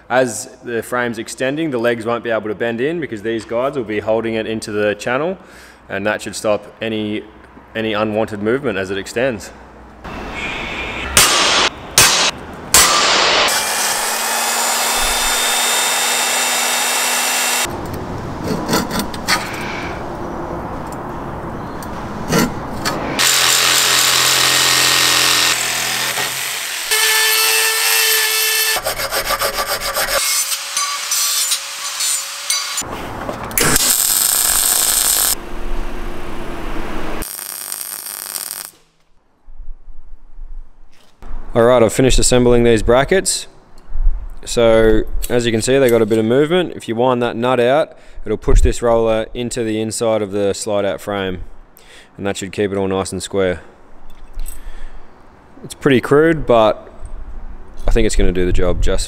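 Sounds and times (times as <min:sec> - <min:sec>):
power tools cutting steel: 0:12.8 - 0:17.7, 0:23.2 - 0:32.9, 0:33.6 - 0:35.4
jigsaw sawing through steel: 0:13.3 - 0:17.7, 0:23.2 - 0:32.8.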